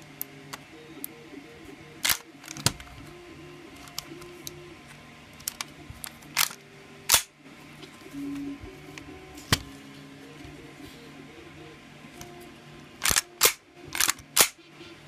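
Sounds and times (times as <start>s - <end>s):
toy pistol parts clicking: 13.0s - 14.6s.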